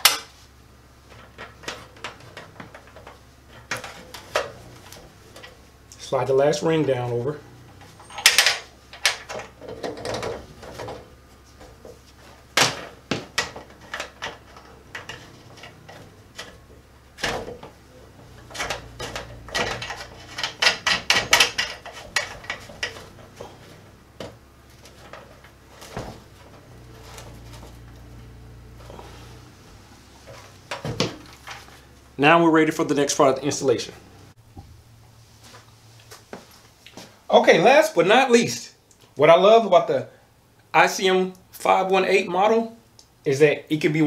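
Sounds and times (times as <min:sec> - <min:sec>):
gloved hands clicking and rattling wires: 0:17.2 - 0:28.1.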